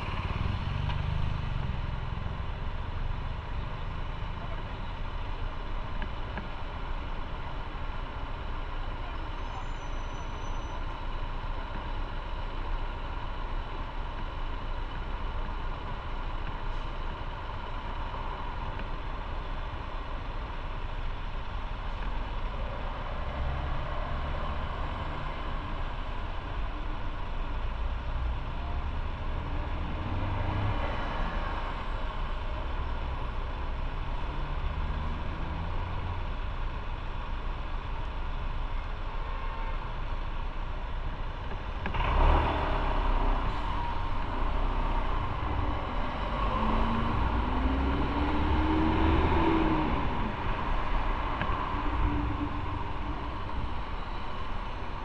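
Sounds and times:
truck car and bus engines: 0:00.0 - 0:55.0.

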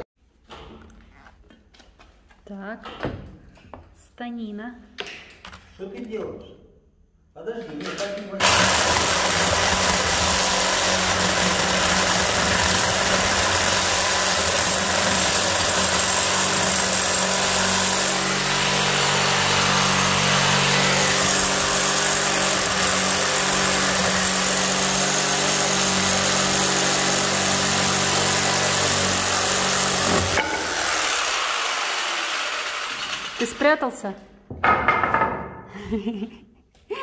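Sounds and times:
electric jigsaw cutting wood: 0:08.4 - 0:33.8.

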